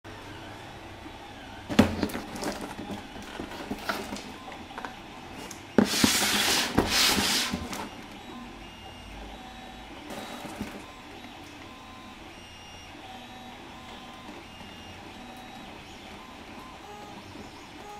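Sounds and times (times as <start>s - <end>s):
cardboard box knocking on table: 1.7s - 4.0s
cardboard scraping rustle: 1.7s - 4.3s, 5.8s - 7.9s
box tapped and rubbed: 5.8s - 7.9s.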